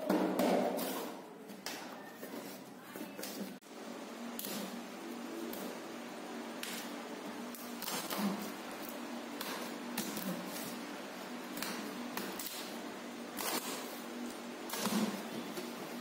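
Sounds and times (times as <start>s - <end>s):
steady low hum: 3.5s - 16.0s.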